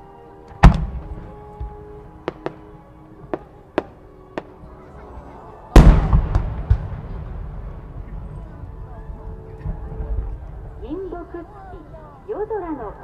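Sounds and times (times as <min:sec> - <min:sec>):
firework shells booming: 0:00.6 - 0:02.7, 0:05.8 - 0:08.2
small firework cracks: 0:02.3 - 0:02.7.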